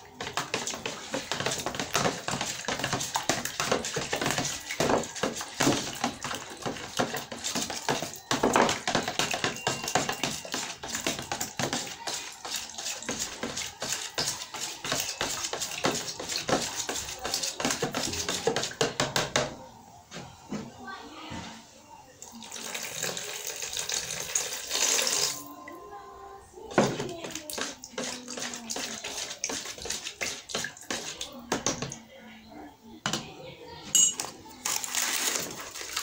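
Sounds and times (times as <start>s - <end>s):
knife tapping plastic tub: 0.1s - 19.5s, 26.7s - 32.0s
knife scraping margarine: 0.2s - 18.8s, 27.6s - 31.3s.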